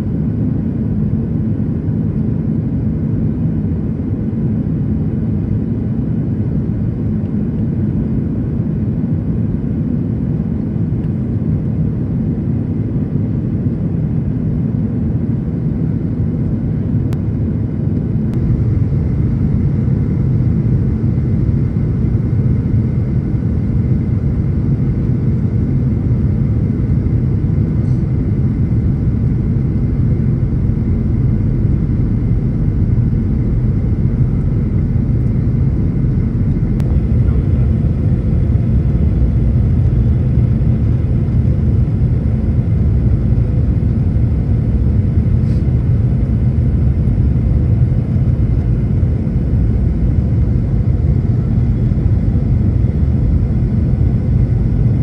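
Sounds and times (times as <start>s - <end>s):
airplane cabin engine rumble: 0.0s - 55.0s.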